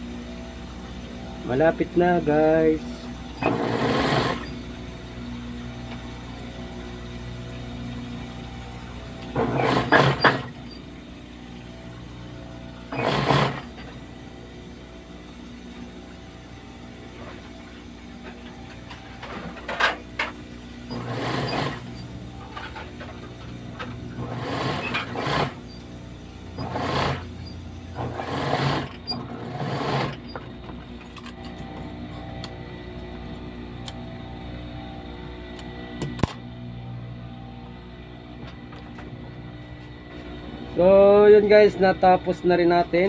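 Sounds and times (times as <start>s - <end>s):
steady hum: 0.0s - 43.0s
sewing machine stitching: 3.4s - 4.6s, 9.3s - 10.6s, 12.9s - 13.9s, 20.9s - 22.0s, 24.2s - 25.7s, 26.6s - 30.4s.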